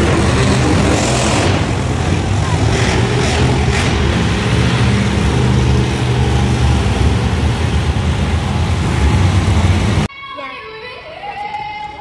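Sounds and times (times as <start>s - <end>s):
loud truck engines revving: 0.0s - 10.1s.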